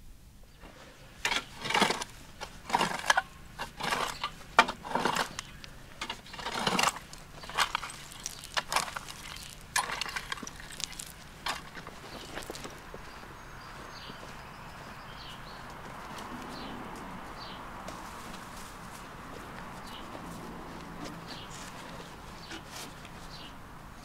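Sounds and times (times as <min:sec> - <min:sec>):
rake scraping through dirt: 0:00.6 - 0:12.9, 0:17.4 - 0:23.5.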